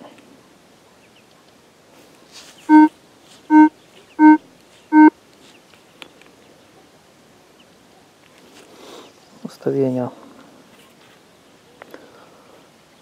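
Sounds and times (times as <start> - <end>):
metal detector beeping: 2.7 - 2.9, 3.5 - 5.1.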